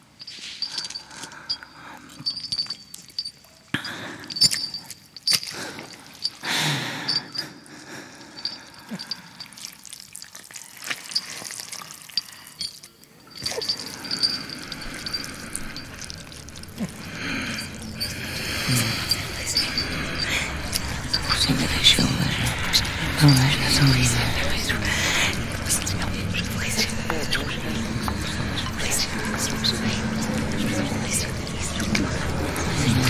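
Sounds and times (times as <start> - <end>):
liquid dripping: 8.4 - 33.0
wet squelching: 9.5 - 33.0
rushing swell: 13.7 - 33.0.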